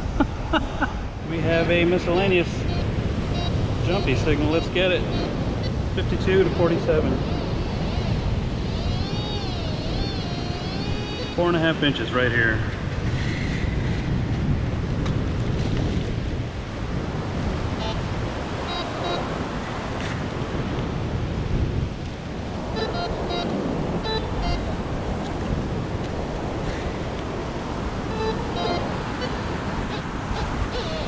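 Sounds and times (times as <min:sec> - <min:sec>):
surf washing up beach: 0:00.0 - 0:10.4, 0:11.2 - 0:31.0
wind on microphone: 0:00.0 - 0:31.0
metal detector beeps: 0:02.2 - 0:11.4, 0:18.7 - 0:19.3, 0:22.8 - 0:24.7, 0:28.1 - 0:31.0.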